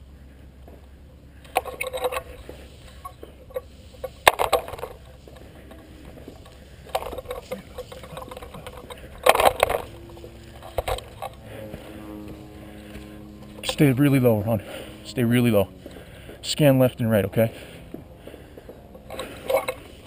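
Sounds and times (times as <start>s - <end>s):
crawling over sand and leaves: 5.0s - 18.2s.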